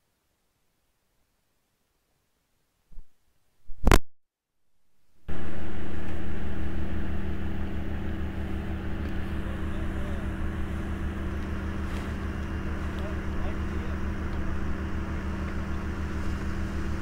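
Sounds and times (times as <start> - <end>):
two-stroke engine droning: 5.3 - 17.0.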